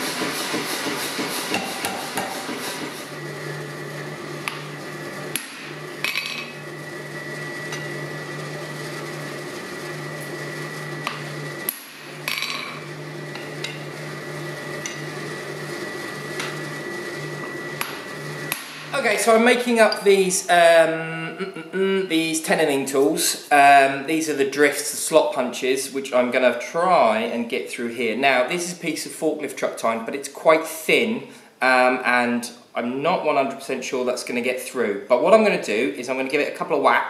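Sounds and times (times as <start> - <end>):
power hammer striking steel: 0.2 - 3.0, 4.4 - 4.7, 5.3 - 6.6, 11.0 - 13.8, 17.8 - 19.0
motor humming: 1.8 - 19.2.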